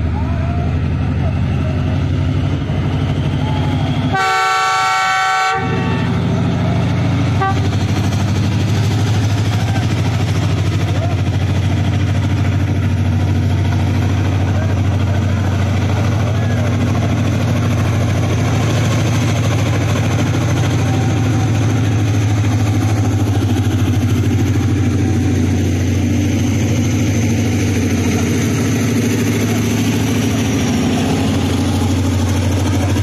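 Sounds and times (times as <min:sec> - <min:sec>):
locomotive diesel engine droning: 0:00.0 - 0:33.0.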